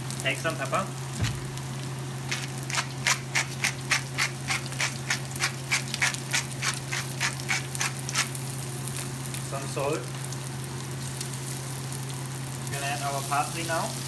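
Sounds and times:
low steady hum: 0:00.0 - 0:02.7
pepper mill grinding: 0:02.3 - 0:08.4.

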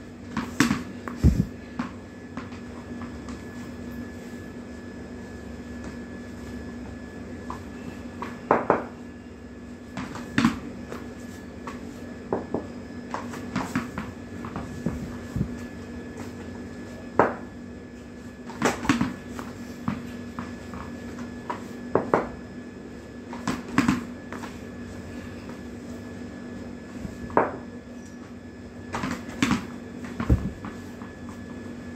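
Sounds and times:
steady low hum: 0:00.0 - 0:31.9
ball bouncing on hard floor: 0:08.2 - 0:08.9, 0:28.9 - 0:30.8.

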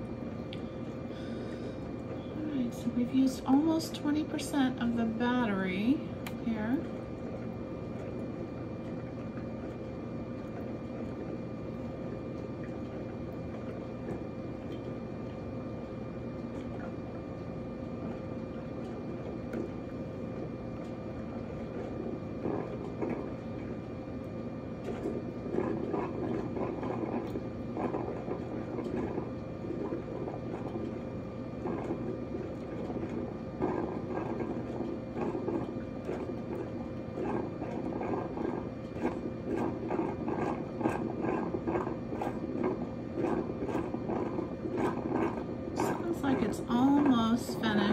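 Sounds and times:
coffee maker gurgling and spitting: 0:00.0 - 0:47.9
steady electrical hum: 0:00.0 - 0:47.9.

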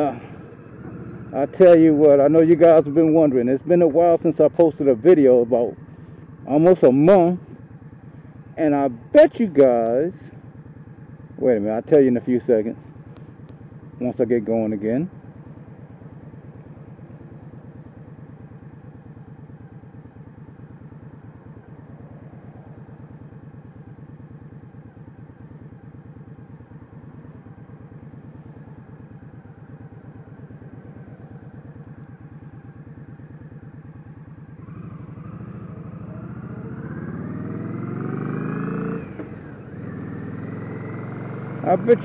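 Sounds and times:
motorcycle engine idling and revving: 0:00.0 - 0:42.0.

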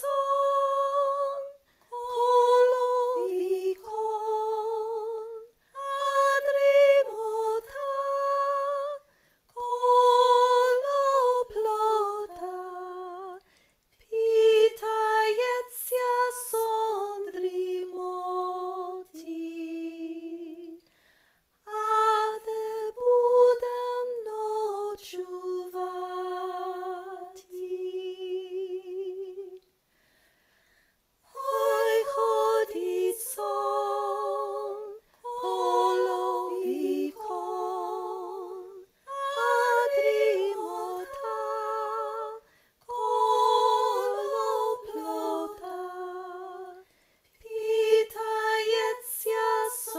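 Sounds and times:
woman singing unaccompanied: 0:00.0 - 0:13.4, 0:31.3 - 0:46.8, 0:47.4 - 0:49.9
singer breathing: 0:09.0 - 0:09.5, 0:20.8 - 0:21.6, 0:29.8 - 0:31.1, 0:42.4 - 0:42.8, 0:46.8 - 0:47.3.

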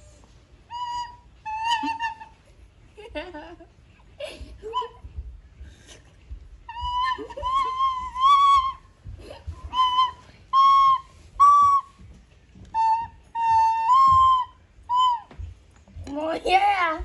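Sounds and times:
soprano recorder notes: 0:00.0 - 0:02.4, 0:06.7 - 0:15.6.

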